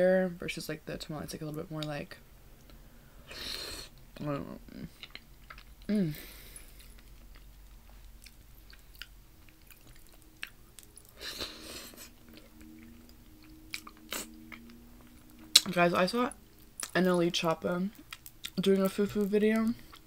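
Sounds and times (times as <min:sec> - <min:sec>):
person chewing: 0:04.7 - 0:15.8, 0:16.4 - 0:17.0, 0:17.9 - 0:18.7
person humming mm: 0:05.9 - 0:06.6, 0:11.2 - 0:14.8.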